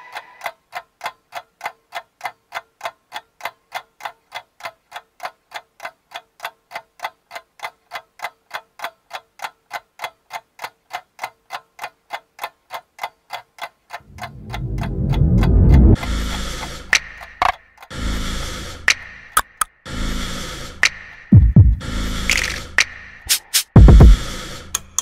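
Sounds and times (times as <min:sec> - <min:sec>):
clock-like ticking: 0:00.0 - 0:18.0, 0:18.7 - 0:19.8, 0:20.8 - 0:25.0
deep loud music swell: 0:14.0 - 0:16.9.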